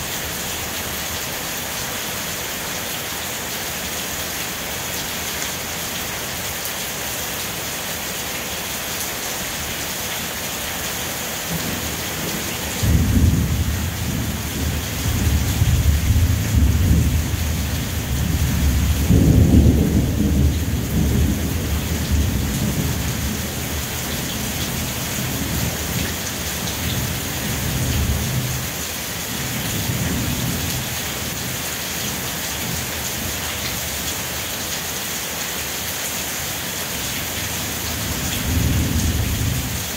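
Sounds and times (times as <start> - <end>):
steady rain falling: 0.0 - 39.9
thunder rumbling: 12.8 - 23.4.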